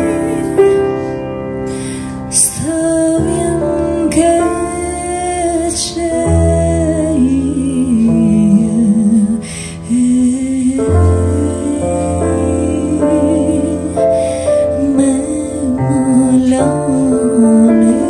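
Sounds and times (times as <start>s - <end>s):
woman singing folk song: 2.3s - 18.0s.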